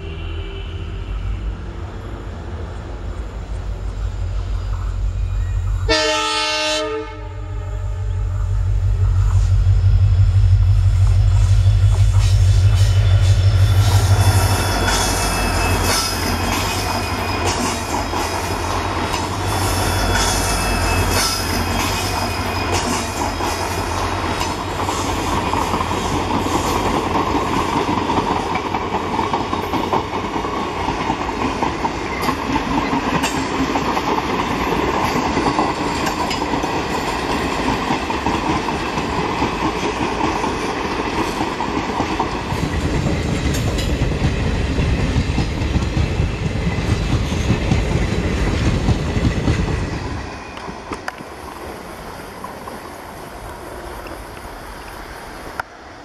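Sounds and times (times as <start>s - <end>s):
locomotive engine rumble: 7.8s - 17.4s
train wheels clickety-clack: 8.4s - 51.8s
high wheel squeal: 11.2s - 17.8s, 19.4s - 23.2s.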